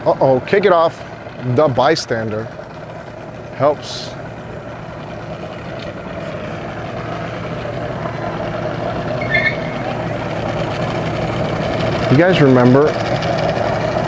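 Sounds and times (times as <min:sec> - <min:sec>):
engine running: 0:00.0 - 0:14.0
brief high chirp: 0:09.2 - 0:09.8.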